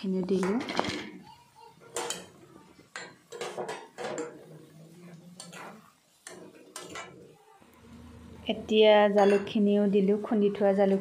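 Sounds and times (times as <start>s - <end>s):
curry boiling: 0.0s - 11.0s
utensils clinking against wok: 1.8s - 4.7s, 5.3s - 7.3s, 9.0s - 9.8s.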